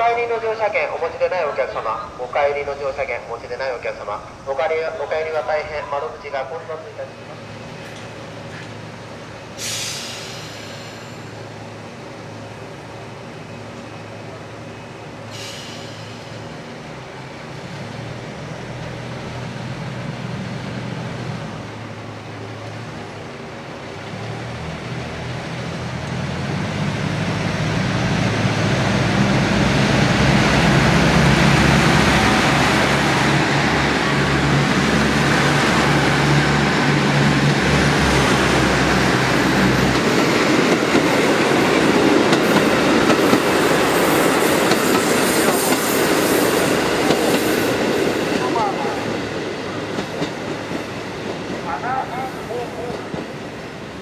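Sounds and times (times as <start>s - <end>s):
train diesel engine: 0.0s - 54.0s
train wheels clacking on rails: 28.0s - 53.5s.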